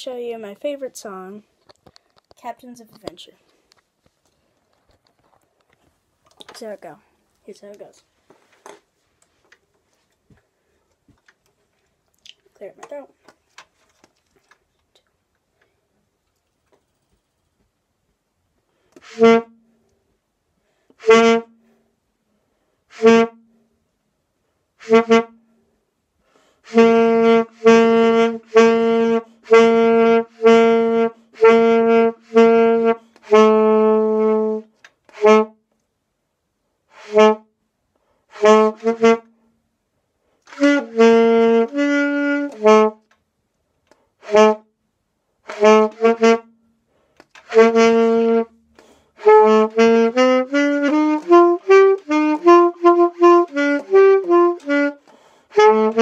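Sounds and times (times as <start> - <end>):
saxophone playing: 19.0 - 19.8, 21.0 - 21.7, 22.9 - 23.6, 24.8 - 25.4, 26.6 - 35.6, 37.0 - 37.5, 38.3 - 39.4, 40.5 - 43.1, 44.2 - 44.7, 45.5 - 46.6, 47.4 - 48.6, 49.2 - 56.0.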